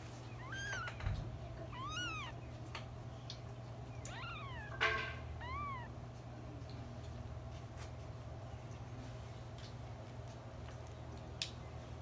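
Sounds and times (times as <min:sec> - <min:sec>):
kittens mewing: 0:00.2 - 0:02.5, 0:03.9 - 0:06.1.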